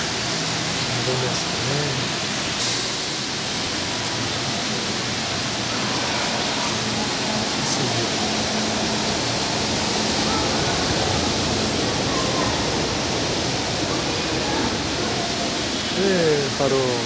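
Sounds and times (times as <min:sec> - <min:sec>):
metro train rolling roar: 0:00.0 - 0:17.0
faint voices: 0:05.4 - 0:17.0.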